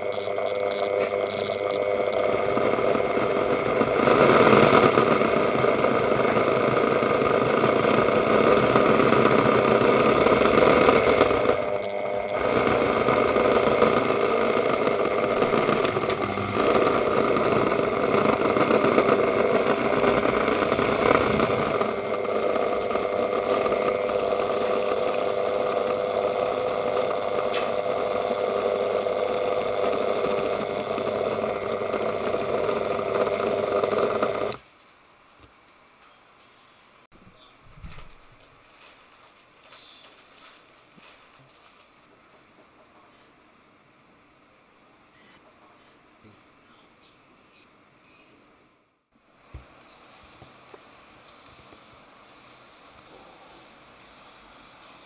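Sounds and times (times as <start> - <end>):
rotary tool whine and rattle: 0.0 - 34.6.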